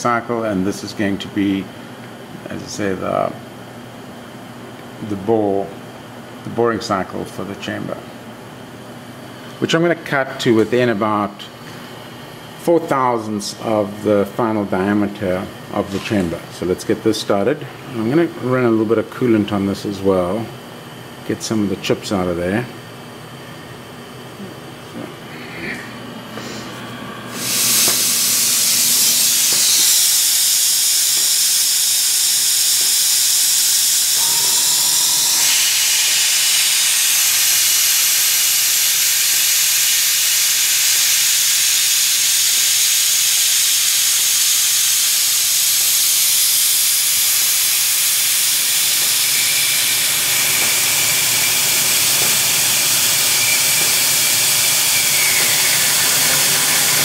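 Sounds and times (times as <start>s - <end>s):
lathe boring metal: 27.3s - 40.9s, 45.6s - 57.0s
coolant spray hissing: 27.4s - 57.0s.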